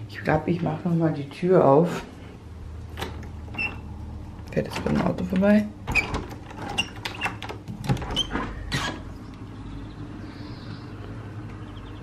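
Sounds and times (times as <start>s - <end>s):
steady low hum: 0.0s - 6.7s, 7.6s - 12.0s
door opening: 2.9s - 9.2s.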